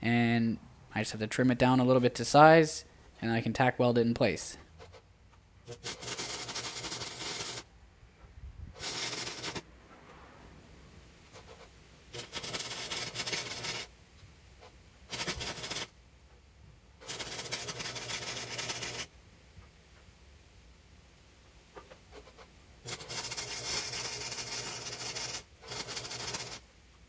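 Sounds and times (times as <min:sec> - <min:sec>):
arc welder bursts: 0:05.7 - 0:07.7, 0:08.8 - 0:09.7, 0:12.1 - 0:13.9, 0:15.1 - 0:15.9, 0:17.0 - 0:19.1, 0:22.8 - 0:26.6.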